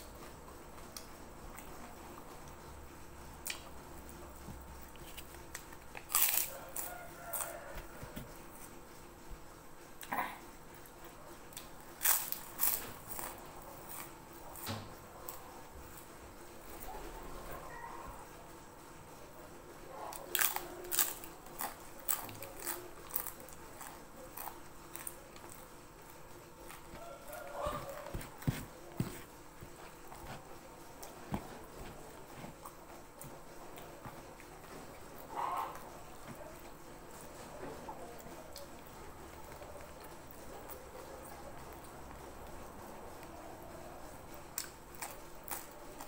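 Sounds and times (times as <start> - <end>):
cracker crunching: 4.8 - 8.2, 11.5 - 15.4, 20.1 - 35.0, 44.5 - 46.0.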